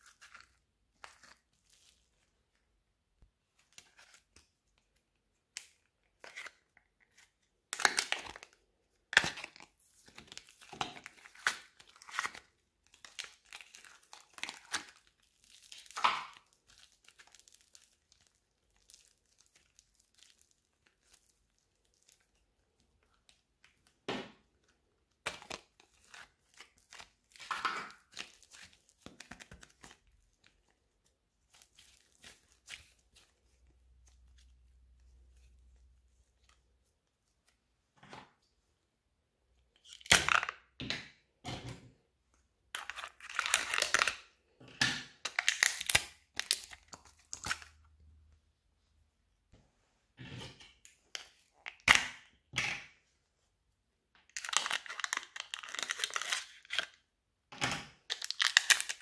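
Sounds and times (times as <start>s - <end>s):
plastic cup crinkling: 3.6s - 24.0s, 24.6s - 36.6s, 42.8s - 44.3s, 45.2s - 47.8s, 54.2s - 57.0s, 58.0s - 59.0s
slime tearing and stretching: 10.2s - 22.4s, 45.3s - 47.7s, 54.3s - 56.9s, 58.1s - 59.0s.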